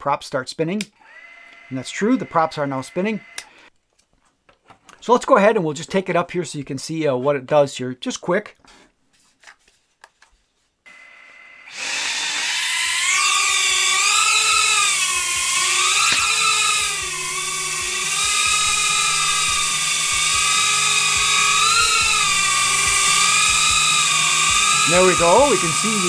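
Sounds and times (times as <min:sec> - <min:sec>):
drone motors whining: 0:10.9 - 0:26.0.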